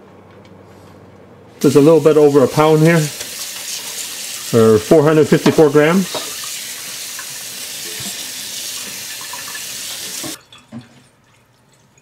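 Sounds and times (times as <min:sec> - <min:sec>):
tap water running: 0:01.6 - 0:12.0
faint water drips: 0:10.3 - 0:12.0.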